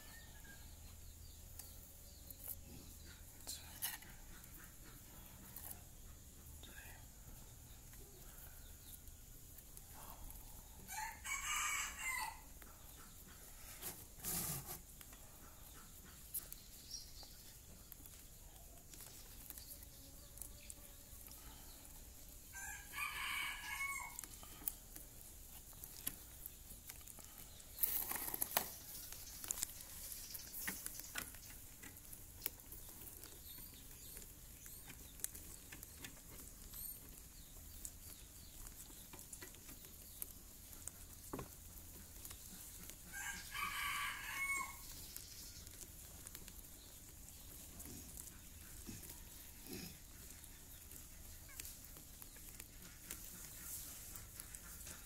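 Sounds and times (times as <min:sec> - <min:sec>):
rabbits gnawing corn: 0:00.0 - 0:55.0
rooster crowing: 0:10.9 - 0:12.5, 0:22.5 - 0:24.2, 0:43.1 - 0:44.9
loud rustle: 0:13.6 - 0:14.9.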